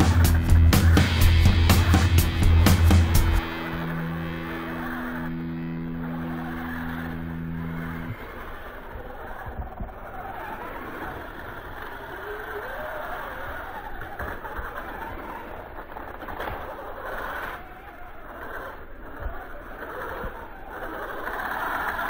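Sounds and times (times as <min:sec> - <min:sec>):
steady rushing noise: 0:00.0 - 0:09.2
electric motors whining: 0:00.0 - 0:14.1.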